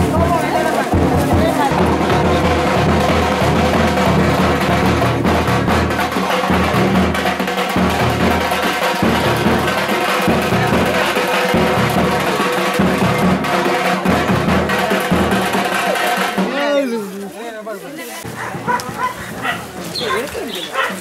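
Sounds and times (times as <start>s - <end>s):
music with drums and percussion: 0.0s - 21.0s.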